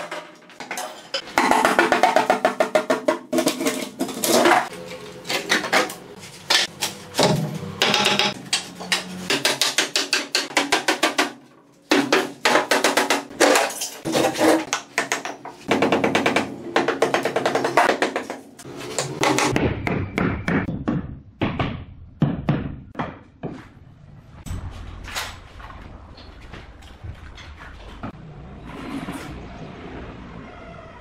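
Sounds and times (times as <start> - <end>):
hammer striking wooden boards: 6.5 - 13.6, 14.7 - 18.4.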